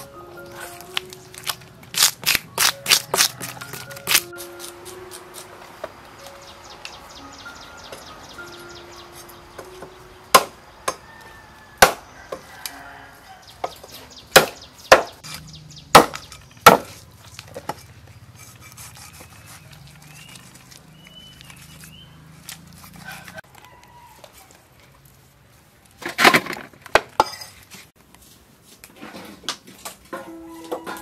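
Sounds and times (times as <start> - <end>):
chickens clucking and crowing: 0.0 - 14.8, 22.8 - 24.9, 30.1 - 31.0
cleaver chopping fish: 0.9 - 5.6, 9.6 - 11.1, 11.8 - 12.5, 14.4 - 17.0, 18.4 - 21.6.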